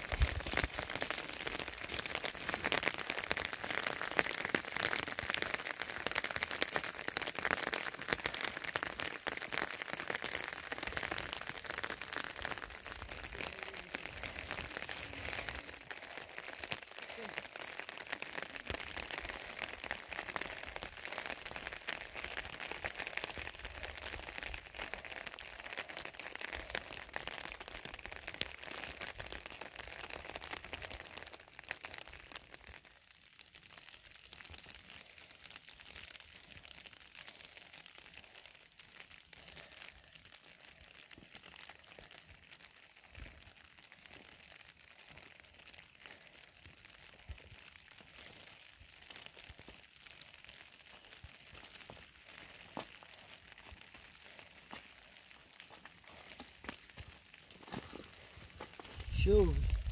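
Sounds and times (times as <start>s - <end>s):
rain pattering: 0.0s - 59.9s.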